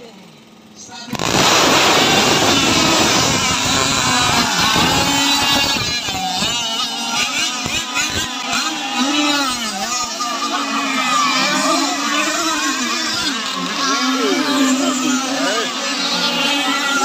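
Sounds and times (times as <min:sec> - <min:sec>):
model boat engines buzzing: 0:00.0 - 0:17.0.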